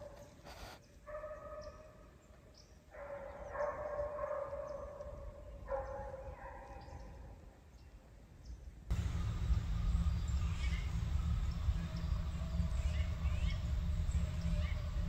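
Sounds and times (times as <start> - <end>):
hunting dogs baying: 3.0 - 7.1, 8.9 - 15.0.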